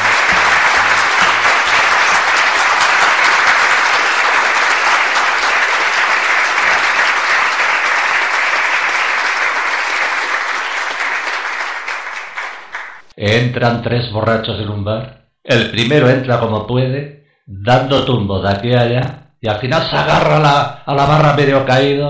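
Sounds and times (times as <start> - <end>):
audience applause: 0.0 - 13.1.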